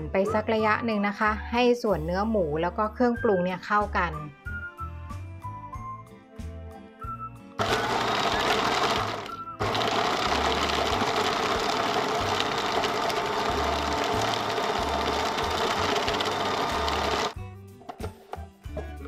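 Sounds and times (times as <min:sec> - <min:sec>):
food processor chopping: 0:07.6 - 0:17.4.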